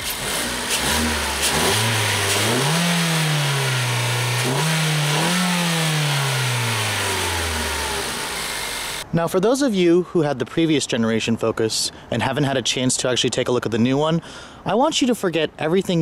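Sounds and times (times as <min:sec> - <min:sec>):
car engine revving: 0:00.0 - 0:09.0.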